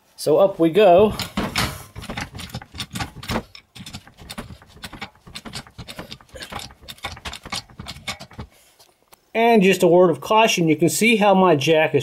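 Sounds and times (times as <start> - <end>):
floor jack being pumped: 1.0 - 8.6.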